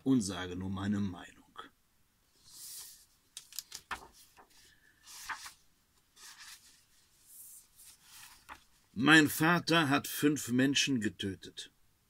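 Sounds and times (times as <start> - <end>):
book pages rustling: 2.4 - 9.0.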